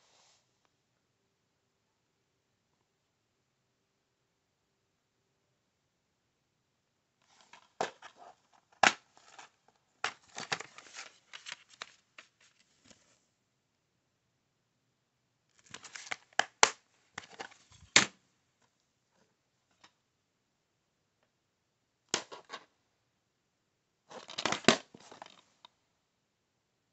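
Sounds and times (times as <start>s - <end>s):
plastic case rustling: 7.3s - 13.1s, 15.6s - 18.1s, 24.1s - 25.5s.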